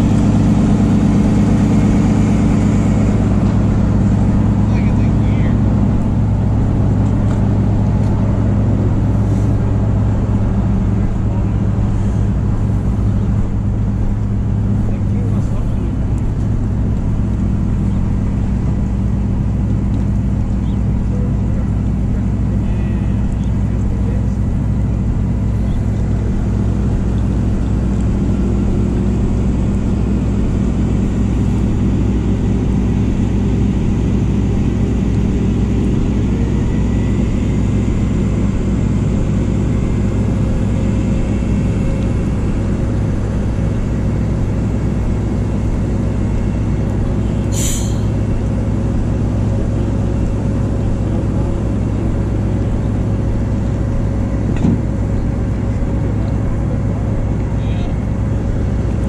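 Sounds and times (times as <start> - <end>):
truck engine running: 0.0 - 59.0
short high squeal: 47.5 - 48.1.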